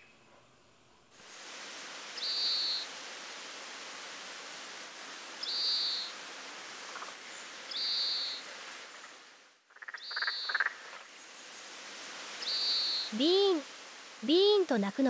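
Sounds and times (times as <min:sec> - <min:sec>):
outdoor background hiss: 0:00.0 - 0:15.0
buzzy bird call: 0:02.2 - 0:02.9, 0:05.4 - 0:06.2, 0:07.7 - 0:08.5, 0:12.4 - 0:13.6.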